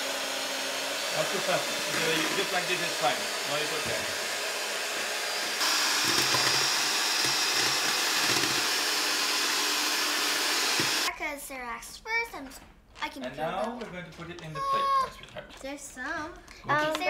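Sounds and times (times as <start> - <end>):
electric hand mixer whirring: 0.0 - 11.1.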